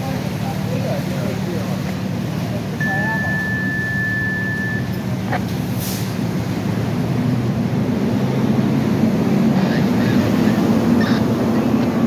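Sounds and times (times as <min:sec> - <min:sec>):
short hiss: 0:05.8 - 0:06.2.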